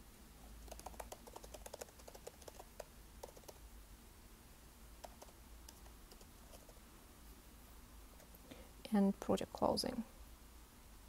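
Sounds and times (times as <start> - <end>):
faint keyboard typing: 0.5 - 3.6, 5.0 - 6.8, 8.1 - 8.4.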